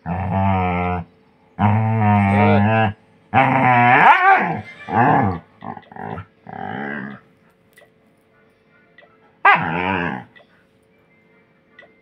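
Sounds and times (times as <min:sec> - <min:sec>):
dog grumbling and whining: 0:00.0 - 0:07.3, 0:09.5 - 0:10.4.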